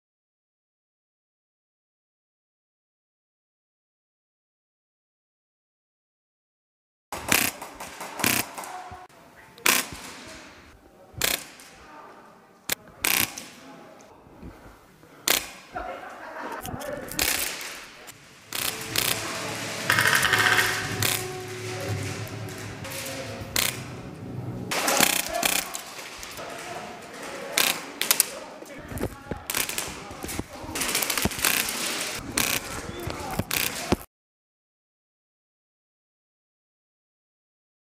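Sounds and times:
airsoft rifle firing bursts: 7.2s - 8.7s, 24.7s - 26.4s
airsoft rifle shots: 7.2s - 8.9s, 9.6s - 10.5s, 11.2s - 11.8s, 12.8s - 13.6s, 15.2s - 15.8s, 17.0s - 21.3s, 24.7s - 26.6s, 27.4s - 28.4s, 29.0s - 34.1s.

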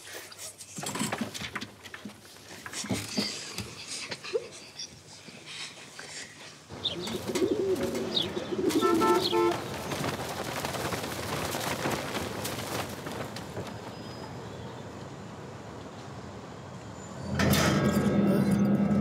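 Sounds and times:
pigeons cooing: 6.7s - 10.2s
flurry of wingbeats: 6.7s - 15.0s.

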